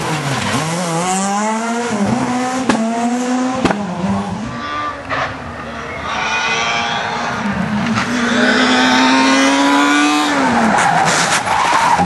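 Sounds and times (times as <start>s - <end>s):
rally car engine at high revs: 0.0s - 5.4s, 6.5s - 12.0s.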